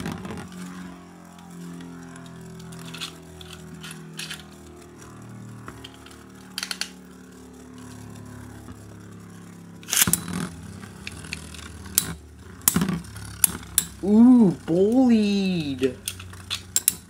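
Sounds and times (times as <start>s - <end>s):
spinning tops whirring: 0.0s - 17.0s
clicks and clatter of launch: 2.6s - 4.6s, 5.7s - 7.0s, 9.8s - 14.0s.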